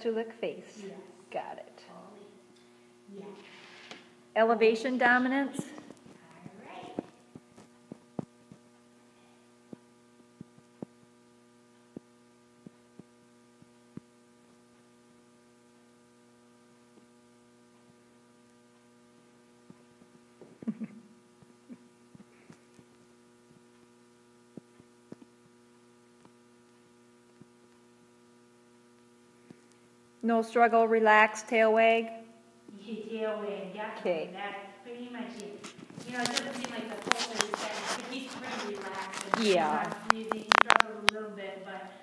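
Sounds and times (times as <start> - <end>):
electrical mains hum: 0.0 - 42.0
faint clicks and knocks: 35.4 - 41.2.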